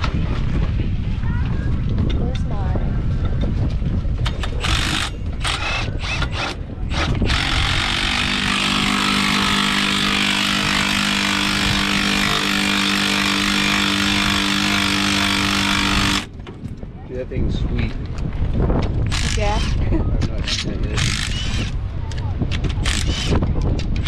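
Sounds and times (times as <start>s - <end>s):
impact driver rattling bursts: 4.4s - 16.3s, 19.1s - 19.8s, 20.9s - 21.8s, 22.8s - 24.0s
impact driver steady whine: 4.4s - 16.3s, 20.9s - 21.8s, 22.9s - 23.5s.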